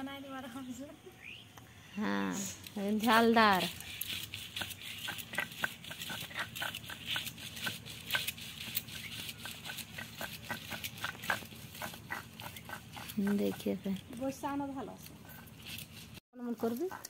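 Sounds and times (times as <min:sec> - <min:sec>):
stone grinder scraping: 0:02.7 - 0:17.0.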